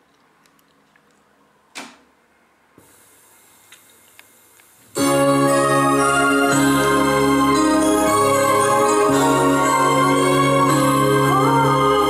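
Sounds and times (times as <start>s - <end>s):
organ music on radio: 5.0s - 12.0s.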